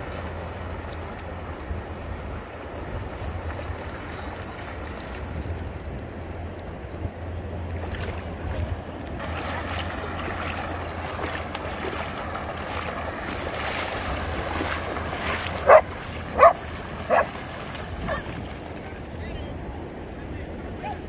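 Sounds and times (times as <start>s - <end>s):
surf: 0.0s - 21.0s
wind rumble on microphone: 0.0s - 21.0s
dogs splashing through water: 7.7s - 19.1s
dog barking: 15.6s - 17.3s.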